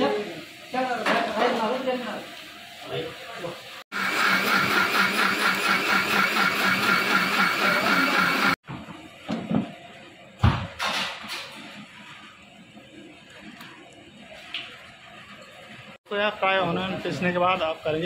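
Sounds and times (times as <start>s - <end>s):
electric mixer grinder running: 3.9s - 8.6s.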